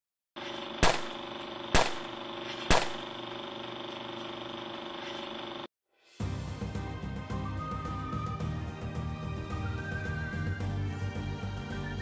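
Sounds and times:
loud sharp bangs: 0.8s - 2.1s, 2.7s - 3.1s.

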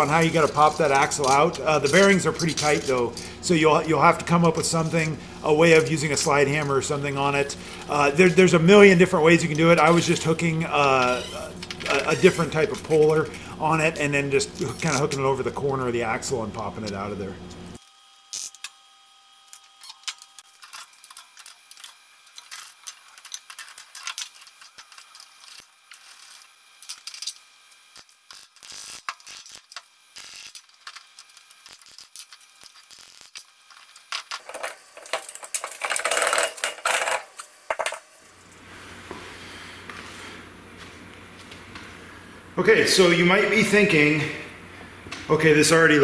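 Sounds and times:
steady low hum: 0.0s - 17.8s, 34.5s - 46.0s
tools clinking and ratcheting on metal: 34.1s - 38.0s.

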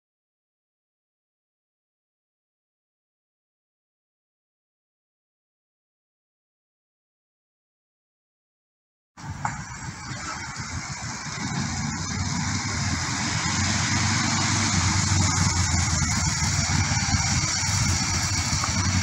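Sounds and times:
motorcycle engine running: 9.2s - 19.0s.

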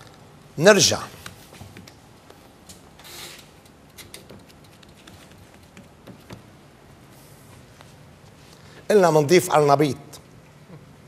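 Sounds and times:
soft rubbing hiss: 4.5s - 8.9s.

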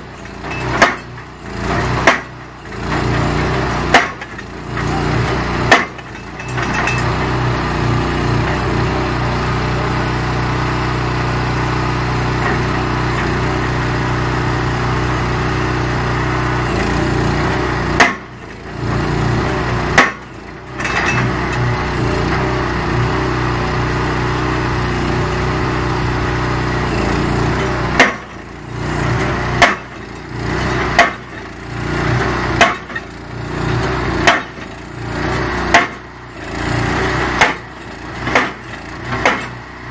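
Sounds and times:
sharp metal clank: 0.0s - 7.4s, 19.5s - 21.8s, 32.6s - 33.1s
hammer pounding steel post: 0.0s - 8.8s, 16.6s - 23.1s, 26.9s - 39.7s
small engine running: 0.0s - 39.9s.

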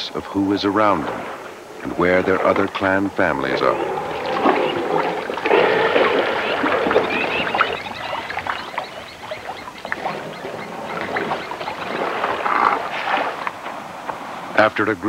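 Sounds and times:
water splashing and sloshing: 0.1s - 14.7s
elephant squeaks: 3.4s - 13.0s.

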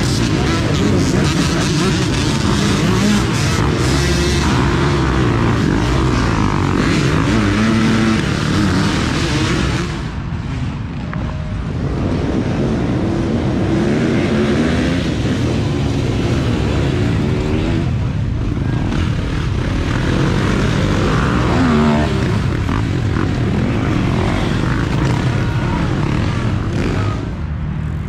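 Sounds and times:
dirt bike engines revving: 0.0s - 28.0s.

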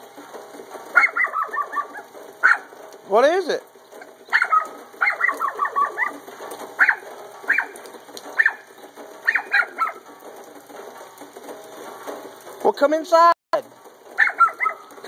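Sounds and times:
small dog barking: 0.9s - 2.8s, 4.0s - 10.1s, 14.2s - 15.0s.

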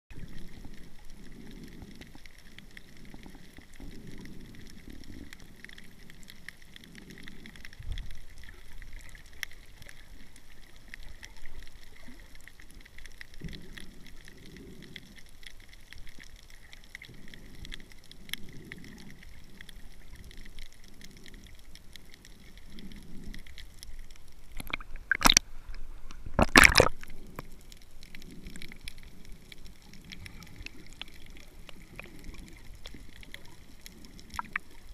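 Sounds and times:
underwater gurgling and sloshing: 0.1s - 34.9s.

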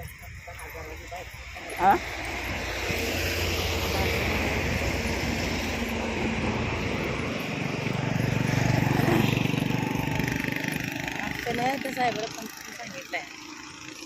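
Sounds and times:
wind noise: 0.0s - 10.5s
motorcycle engine passing: 0.0s - 14.0s
traffic: 0.0s - 14.0s.

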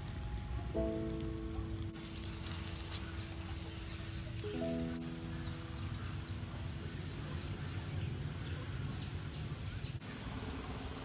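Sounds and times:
small bird chirping: 2.0s - 10.7s.

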